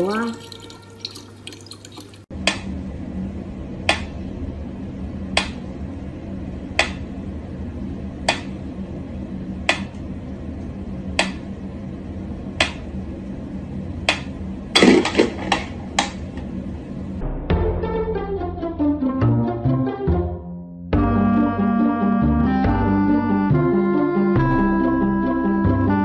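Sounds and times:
low steady hum: 0.0 - 17.4.

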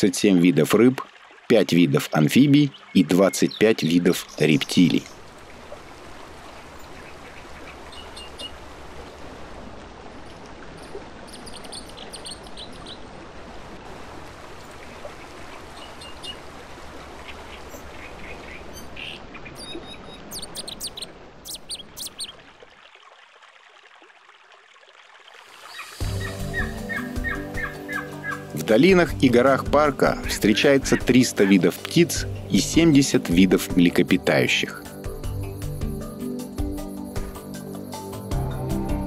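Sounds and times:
flowing shallow water: 0.0 - 39.0
bird chirps: 10.8 - 13.0, 18.2 - 22.4, 25.7 - 28.4.

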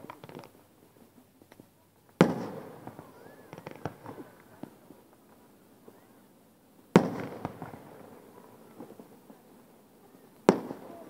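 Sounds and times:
faint firework crackles: 0.0 - 11.0
small firework pop: 10.4 - 10.9.

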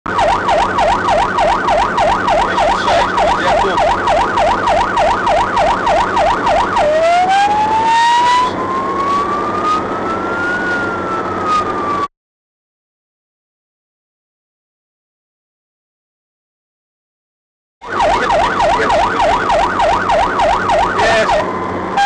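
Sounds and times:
engine and road hum: 0.0 - 12.1, 17.8 - 22.0
emergency siren yelp and wail: 0.1 - 12.1, 17.8 - 22.0.

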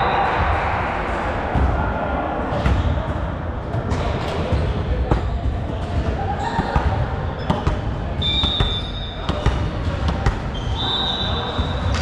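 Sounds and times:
volleyball bouncing on floor: 3.8 - 10.6
referee's whistle blowing: 8.2 - 9.2, 10.5 - 12.0.

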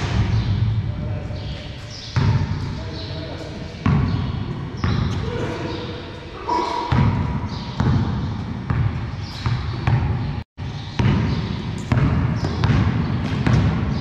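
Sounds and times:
basketball bouncing on concrete: 3.8 - 5.2, 6.9 - 10.1, 10.9 - 14.0.

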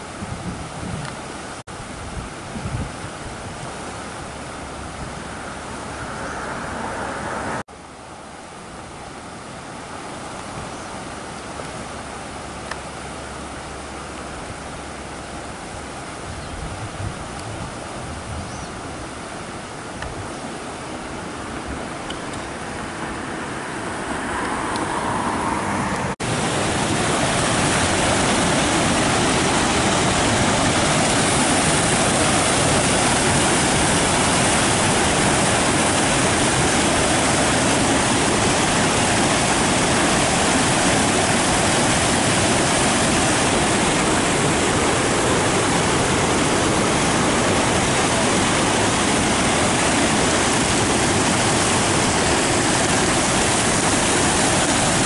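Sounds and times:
floodwater rushing down a creek: 0.0 - 55.0
water pouring over rock ledges: 26.2 - 55.0.

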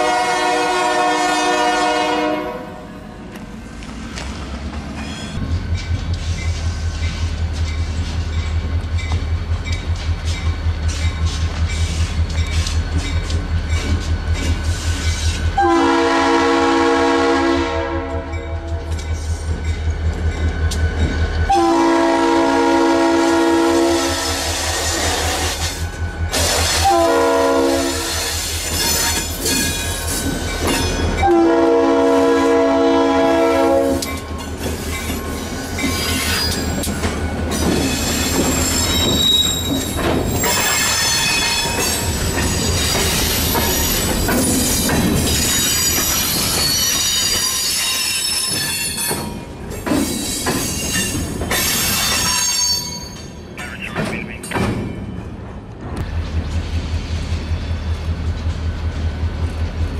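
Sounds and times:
locomotive air horn blasts: 0.0 - 3.0, 15.6 - 18.8, 21.5 - 24.6, 26.7 - 28.2, 31.2 - 34.1
train wheels clattering: 3.3 - 15.6, 24.1 - 32.0, 33.5 - 59.9
wheels squealing on rails: 3.8 - 15.7, 23.6 - 31.8, 33.5 - 55.3.

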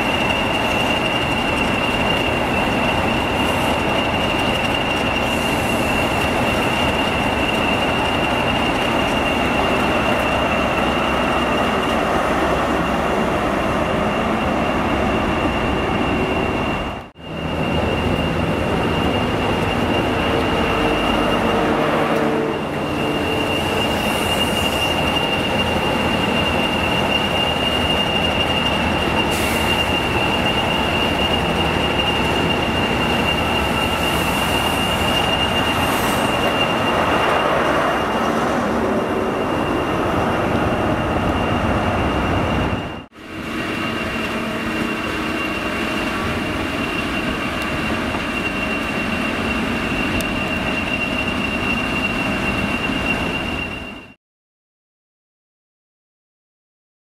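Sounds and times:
train running rumble: 0.0 - 54.2
high steady whine: 12.6 - 54.2.

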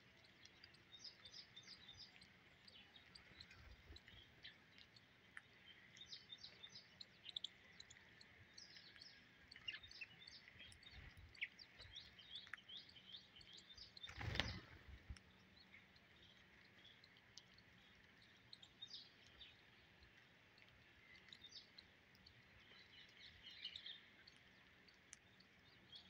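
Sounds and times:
sparrows chirping: 0.0 - 26.0.

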